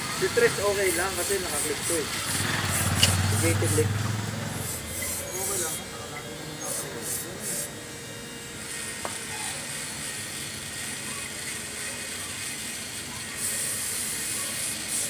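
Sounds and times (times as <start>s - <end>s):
steady background noise: 0.0s - 15.0s
aerosol spray hissing: 6.7s - 7.7s, 13.4s - 15.0s.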